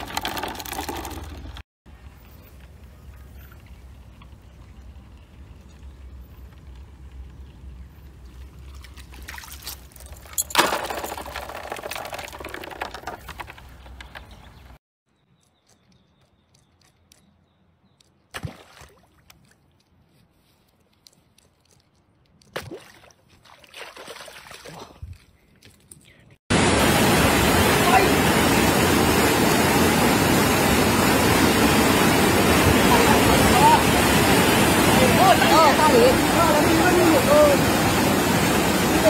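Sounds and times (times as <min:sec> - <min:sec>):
water pouring and trickling: 0:00.0 - 0:13.9
loud water splash: 0:26.5 - 0:39.0.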